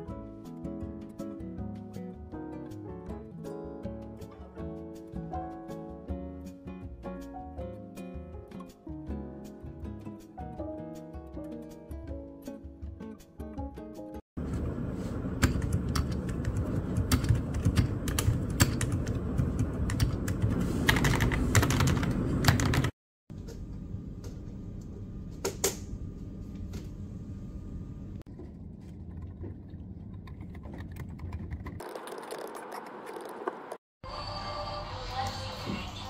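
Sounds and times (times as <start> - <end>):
keyboard typing: 15.4 - 22.9.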